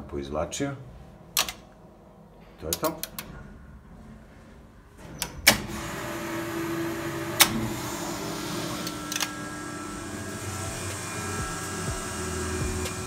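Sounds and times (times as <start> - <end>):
electric pump motor humming: 5.5 - 13.0.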